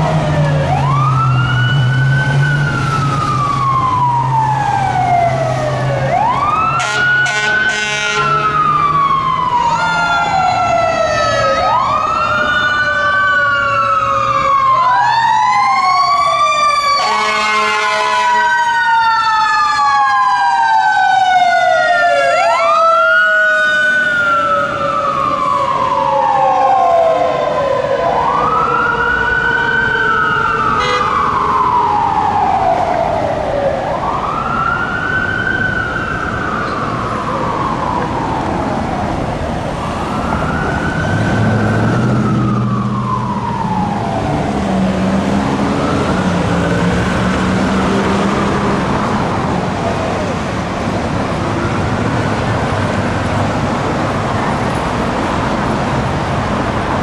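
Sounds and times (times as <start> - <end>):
sirens wailing: 0.0 - 57.0
air horn blast: 6.8 - 8.5, 17.0 - 18.4, 30.8 - 31.2.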